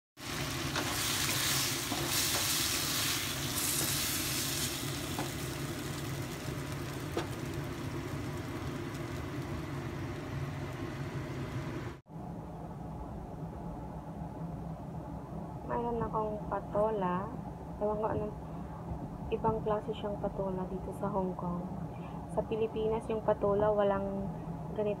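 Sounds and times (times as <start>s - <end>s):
vegetables sizzling in oil: 0.2s - 12.0s.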